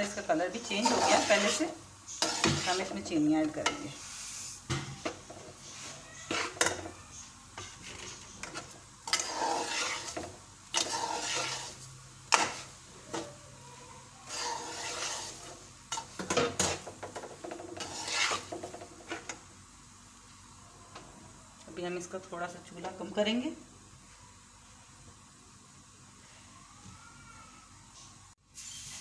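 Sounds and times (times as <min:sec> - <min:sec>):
metal spatula scraping semolina in pan: 0:00.1 - 0:04.6, 0:05.6 - 0:13.2, 0:14.2 - 0:19.3.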